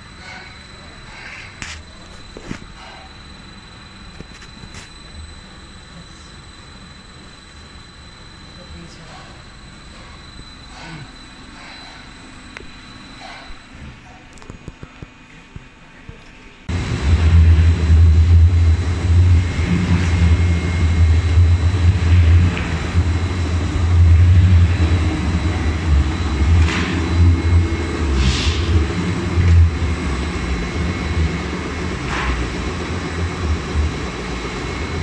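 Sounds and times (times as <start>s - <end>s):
faint whine: 0.0s - 35.0s
lathe motor hum: 16.7s - 35.0s.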